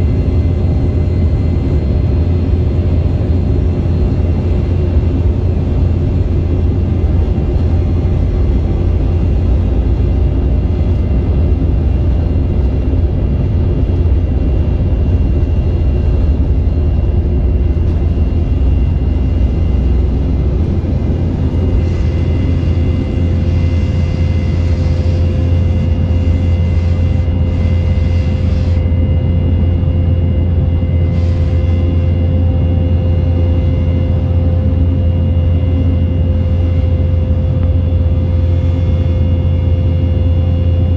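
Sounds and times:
airliner cabin rumble: 0:00.0 - 0:40.9
high steady hum: 0:00.0 - 0:40.9.

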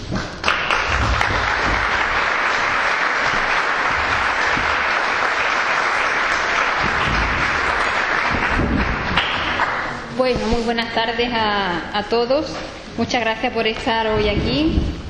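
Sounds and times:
audience applauding: 0:00.0 - 0:10.1
low thumps: 0:00.0 - 0:10.8.

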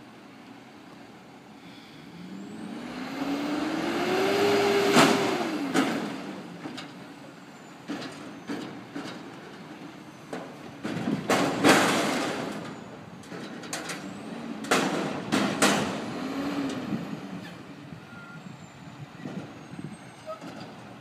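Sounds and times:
truck engine revving: 0:02.2 - 0:06.7, 0:14.0 - 0:17.7
dumpster clanking: 0:07.7 - 0:17.6, 0:20.2 - 0:21.0.

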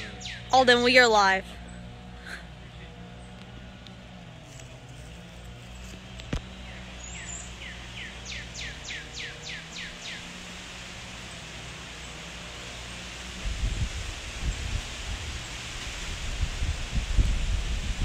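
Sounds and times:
bird singing: 0:00.0 - 0:03.8, 0:06.4 - 0:10.6.

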